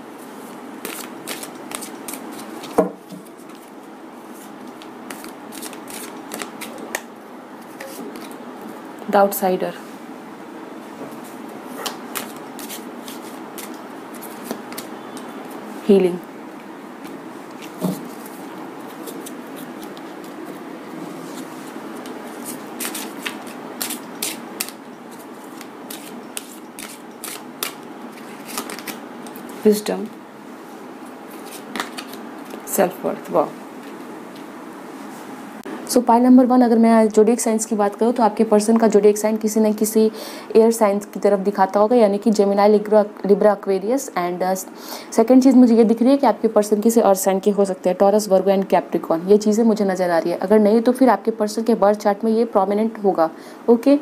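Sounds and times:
cards being shuffled: 0:00.8 - 0:08.4, 0:11.8 - 0:15.6, 0:17.0 - 0:20.6, 0:21.3 - 0:29.5, 0:31.3 - 0:32.7.

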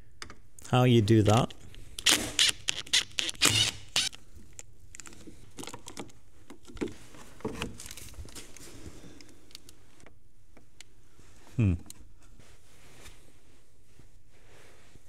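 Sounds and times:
cordless drill running: 0:02.0 - 0:04.2.

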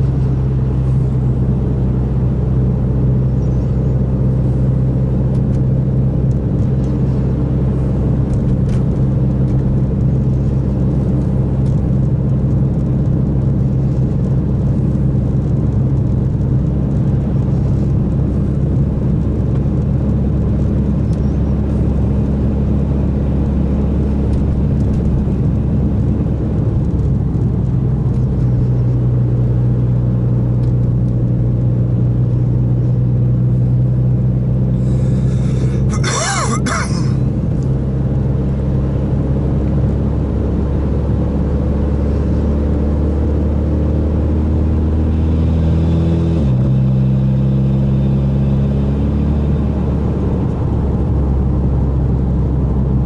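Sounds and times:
car engine and road noise drone: 0:00.0 - 0:53.0.

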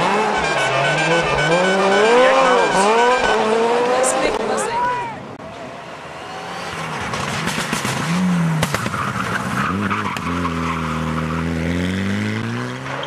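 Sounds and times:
rally car engine revving: 0:00.0 - 0:04.8, 0:05.6 - 0:13.0
sharp cracks: 0:06.7 - 0:10.3.

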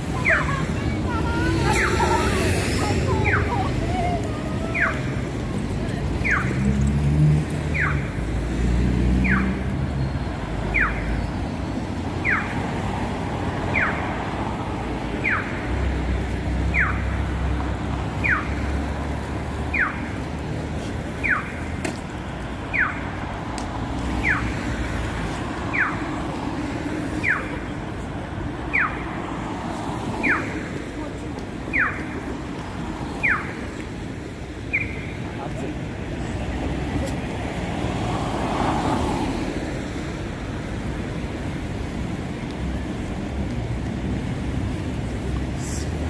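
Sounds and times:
passing road traffic rumble: 0:00.0 - 0:46.0.

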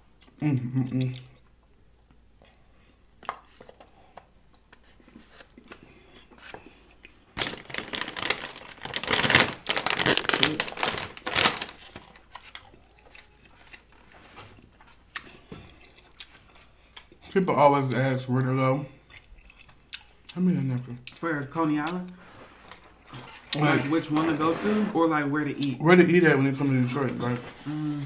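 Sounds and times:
faint chewing: 0:00.2 - 0:07.3, 0:11.8 - 0:17.5, 0:18.4 - 0:20.4
plastic chip bag crinkling: 0:07.4 - 0:14.2.

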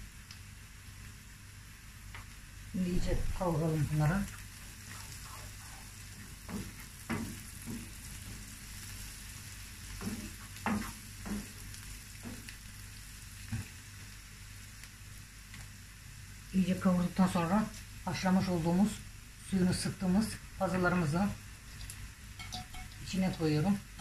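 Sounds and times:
onions sizzling in a frying pan: 0:00.0 - 0:24.0
spatula scraping and knocking pan: 0:06.4 - 0:08.5, 0:09.9 - 0:11.6.

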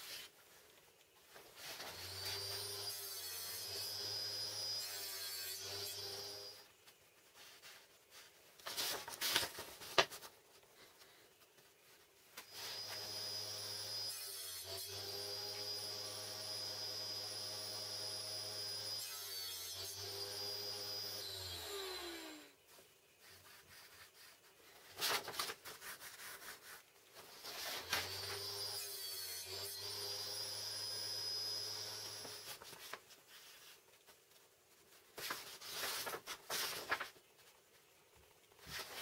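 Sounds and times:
paper rustling: 0:06.8 - 0:12.8, 0:22.7 - 0:28.2, 0:32.4 - 0:37.9, 0:38.5 - 0:39.0.

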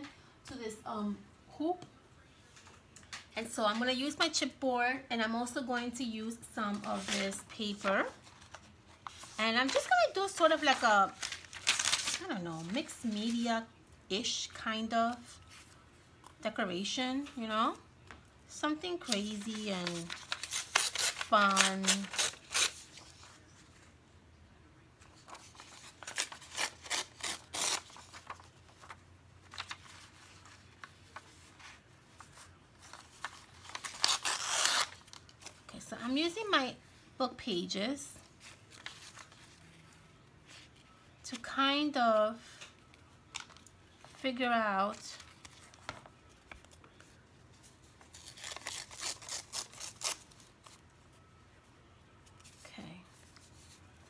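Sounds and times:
paper rustling and crinkling: 0:06.7 - 0:13.4, 0:19.0 - 0:23.9, 0:25.0 - 0:35.8, 0:38.2 - 0:41.0, 0:44.9 - 0:50.8
paper tearing: 0:19.1 - 0:23.1, 0:25.2 - 0:28.5, 0:32.9 - 0:35.5, 0:48.1 - 0:50.5.

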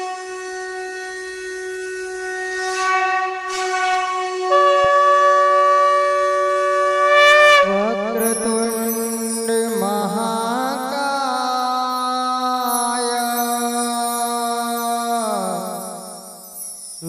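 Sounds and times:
reedy wind instrument music: 0:00.0 - 0:10.7.

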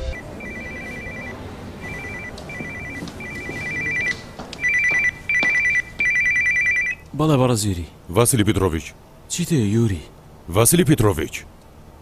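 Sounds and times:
electronic telephone ringing: 0:00.0 - 0:07.0.

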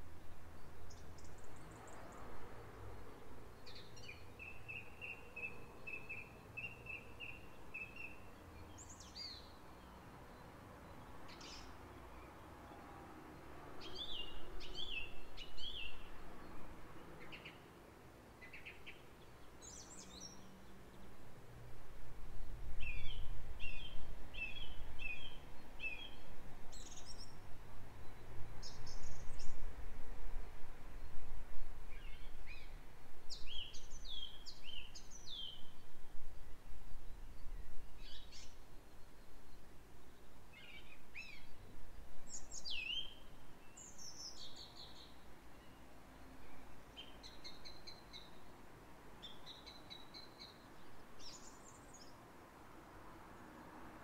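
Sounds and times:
songbirds chirping: 0:00.0 - 0:54.0
wind rumbling on microphone: 0:21.8 - 0:38.7.

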